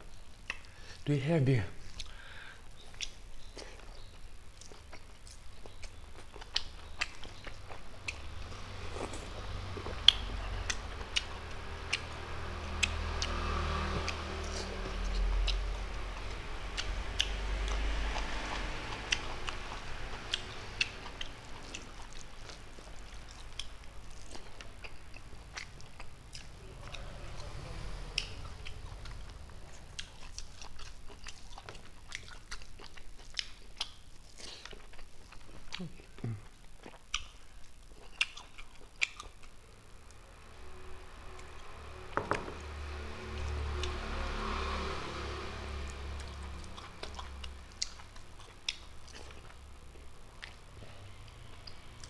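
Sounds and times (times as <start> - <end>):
chewing with wet mouth clicks: 0.4 - 0.8, 1.9 - 2.2, 2.8 - 40.2, 45.7 - 52.0
low rumble: 7.6 - 32.2.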